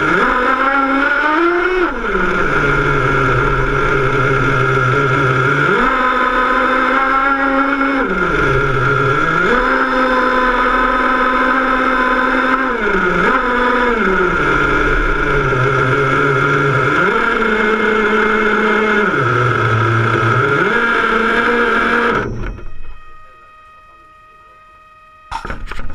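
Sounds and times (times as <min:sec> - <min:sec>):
toy car motor revving: 0:00.0 - 0:23.2.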